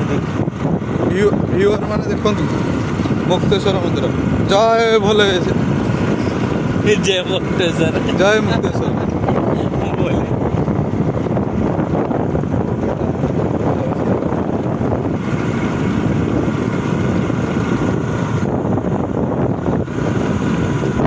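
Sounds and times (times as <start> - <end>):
scooter engine running: 0.0 - 21.0
wind on microphone: 0.0 - 21.0.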